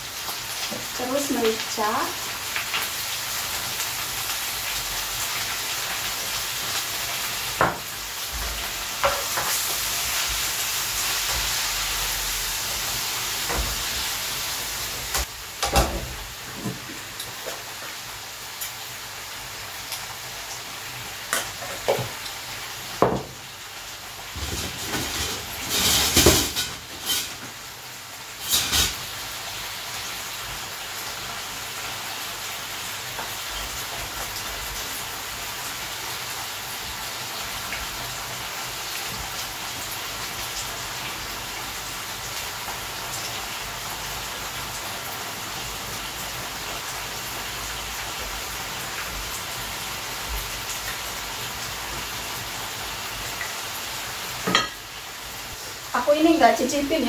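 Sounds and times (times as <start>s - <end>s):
oil sizzling in pans: 0.0s - 57.0s
spatula scraping and knocking pan: 8.4s - 9.7s.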